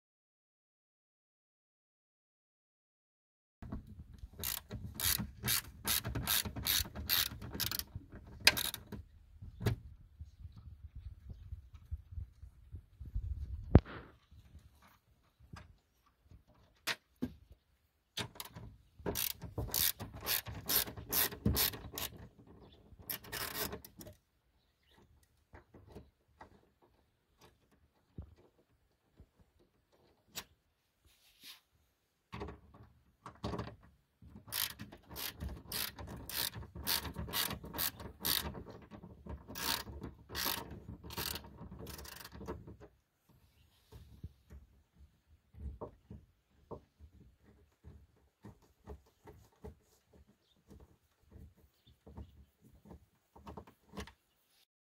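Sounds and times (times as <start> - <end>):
ratchet wrench clicking: 4.4 - 7.9, 8.5 - 8.8, 19.2 - 22.1, 34.5 - 38.4, 39.6 - 42.3.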